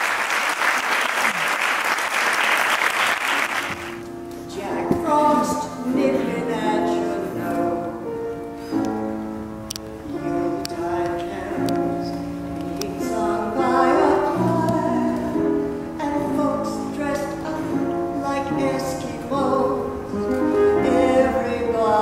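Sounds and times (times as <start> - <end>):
woman singing a carol: 4.5 - 7.9, 10.2 - 12.2, 12.8 - 22.0.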